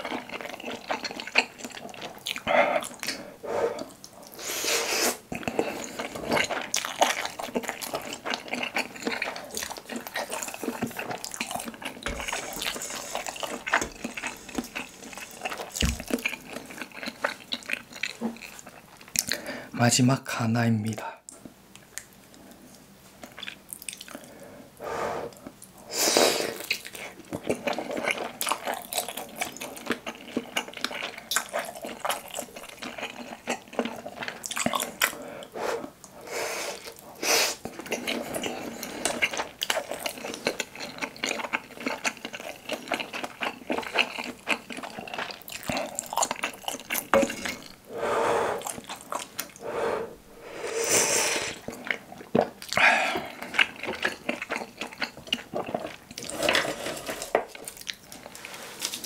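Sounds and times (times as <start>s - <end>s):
chewing with wet mouth clicks: 0.0s - 3.2s, 5.3s - 19.4s, 23.2s - 24.3s, 26.6s - 35.5s, 37.6s - 47.8s, 48.6s - 49.6s, 51.6s - 56.6s, 57.2s - 59.0s
slurping: 44.8s - 57.6s.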